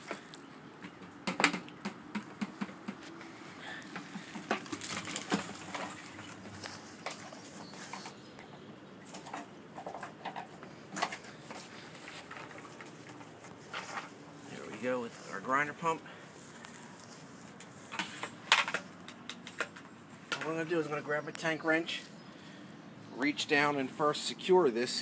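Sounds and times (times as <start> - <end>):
pump knocking and scraping: 0.0 - 8.2, 9.1 - 14.9.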